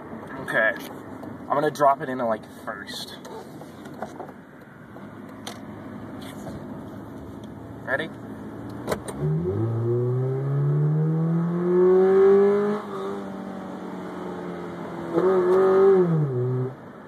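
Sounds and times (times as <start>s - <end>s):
car engine induction roar: 5.0s - 17.0s.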